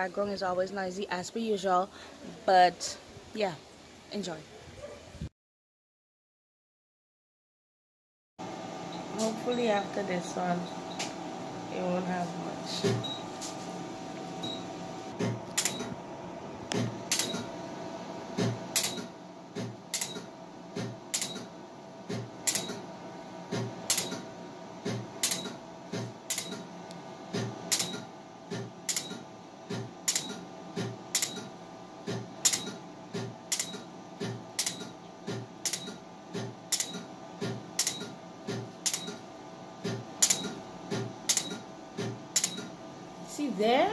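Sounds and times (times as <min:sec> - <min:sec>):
faint steady hum: 0:00.0 - 0:04.3.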